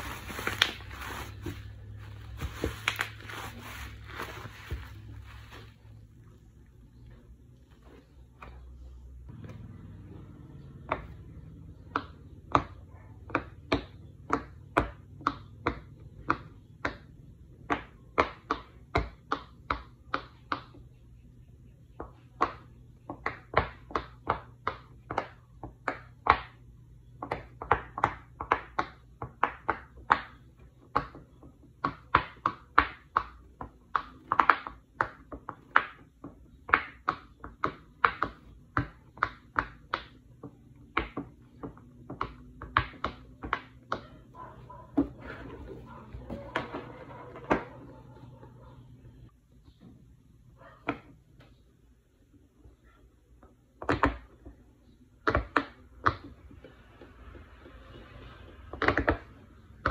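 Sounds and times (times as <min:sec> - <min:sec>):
bubble wrap popping: 0:00.0 - 0:06.0.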